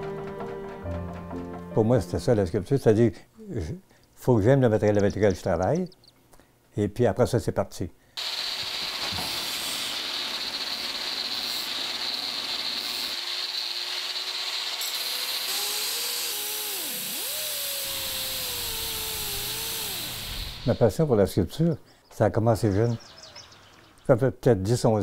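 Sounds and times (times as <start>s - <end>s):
wavering motor whine: 8.2s - 20.9s
power tool rushing noise: 8.2s - 21.0s.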